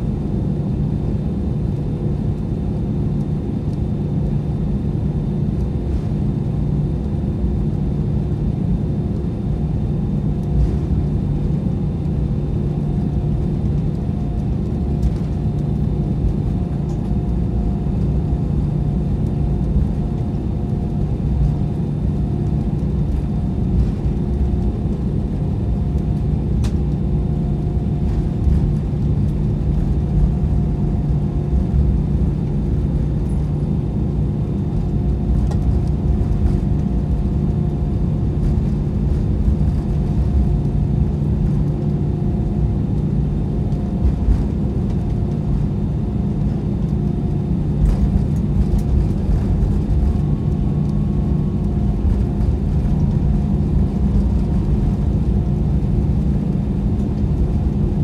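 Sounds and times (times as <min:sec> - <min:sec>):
airplane engine hum: 0:00.0 - 0:58.0.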